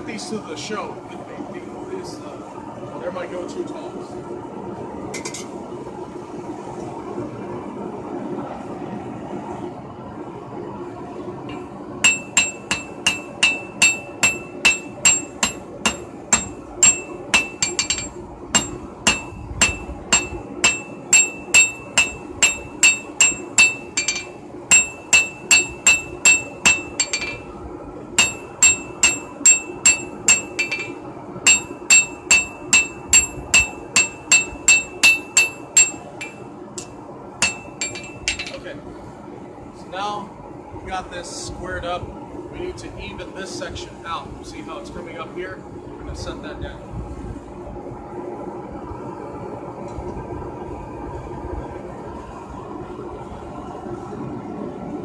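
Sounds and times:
hammer striking steel on anvil: 11.5 - 27.5, 28.2 - 38.6.

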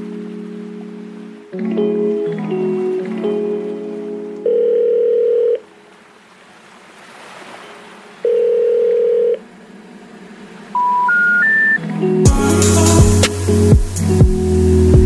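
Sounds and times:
telephone ring tones: 4.4 - 5.7, 8.2 - 9.4, 10.8 - 11.8
short rising beeps: 10.8 - 11.8.

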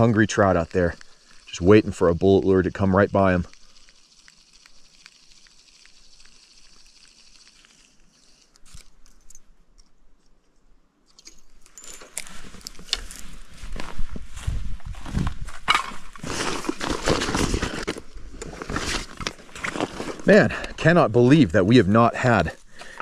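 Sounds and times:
fishing reel whirring and ticking: 0.0 - 8.9
footsteps crunching through dry grass: 12.0 - 20.4.

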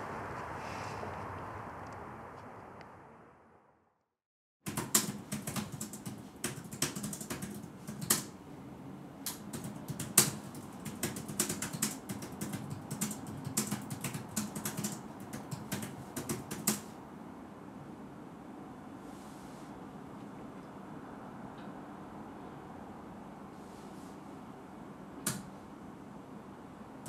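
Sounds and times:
keyboard typing: 4.7 - 8.4, 9.3 - 16.9.

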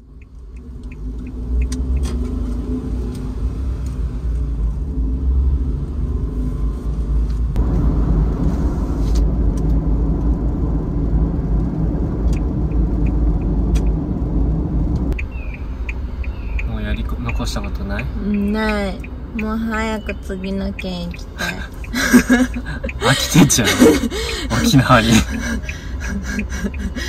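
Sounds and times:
light ticks: 0.0 - 4.0, 14.9 - 19.6
road noise: 0.0 - 27.0
small van engine: 20.4 - 27.0.

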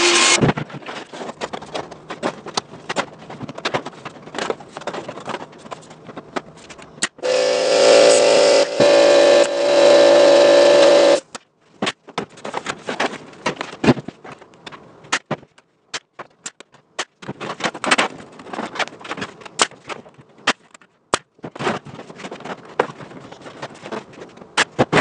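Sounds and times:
power tool motor running: 0.0 - 0.4, 7.2 - 11.2.

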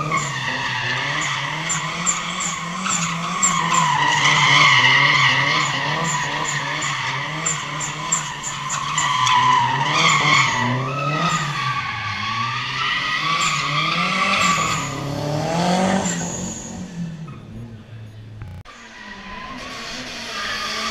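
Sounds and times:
car engine revving: 0.0 - 20.9
tyres squealing: 0.0 - 20.9.

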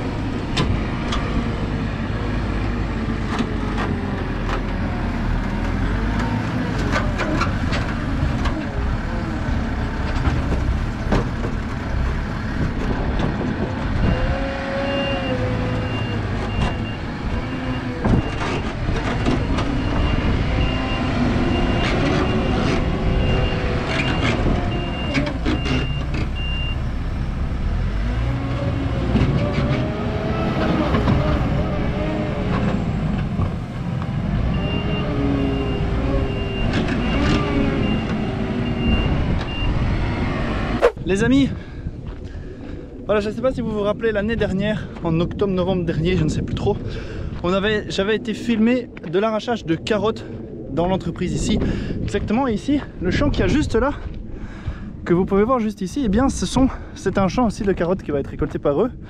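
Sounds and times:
diesel engine revving: 0.0 - 43.1
reversing alarm beeping: 19.4 - 26.8, 34.5 - 39.8.

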